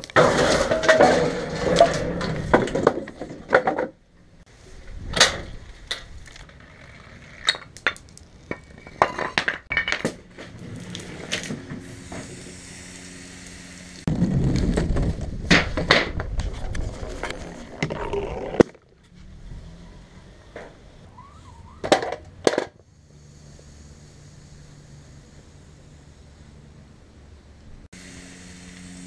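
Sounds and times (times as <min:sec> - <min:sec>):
clattering parts: 0:00.0 - 0:04.4, 0:05.1 - 0:12.3, 0:21.8 - 0:22.9
steady low hum: 0:22.8 - 0:29.0.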